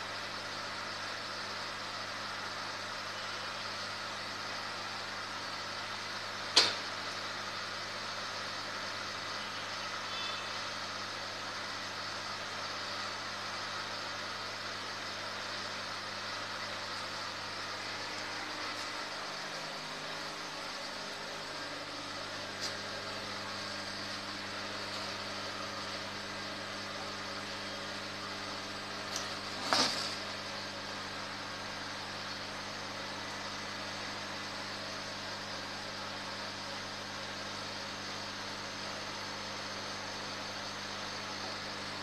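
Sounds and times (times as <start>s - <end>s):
equipment hum and hiss: 0.0s - 42.0s.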